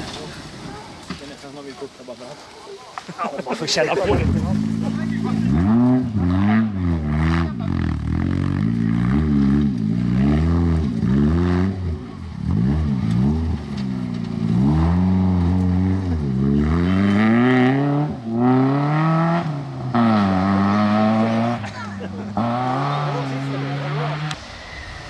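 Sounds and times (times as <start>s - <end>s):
car engine revving hard: 4.0s - 24.8s.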